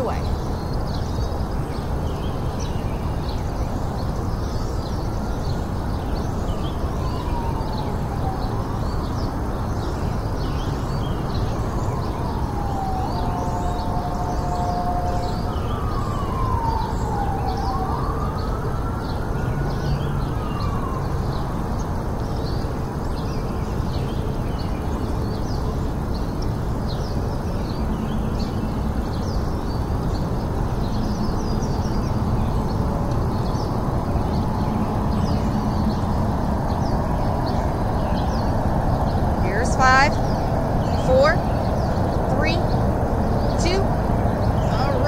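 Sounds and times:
siren wailing: 6.5s - 9.5s, 11.5s - 21.7s.

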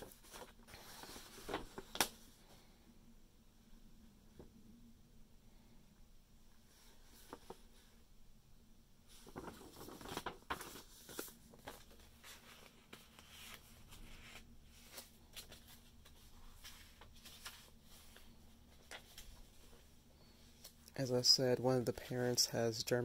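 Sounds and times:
paper rustling and crinkling: 0.0s - 2.3s, 6.9s - 7.9s, 9.1s - 20.0s.

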